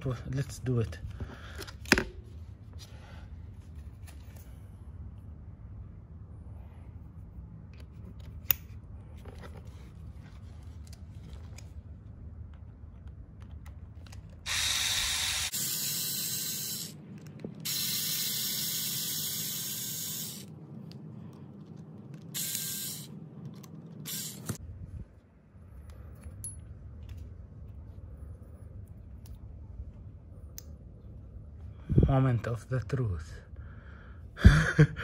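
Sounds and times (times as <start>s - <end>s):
electric screwdriver whirring: 14.5s - 17.0s, 17.7s - 20.5s, 22.4s - 23.1s, 24.0s - 24.6s.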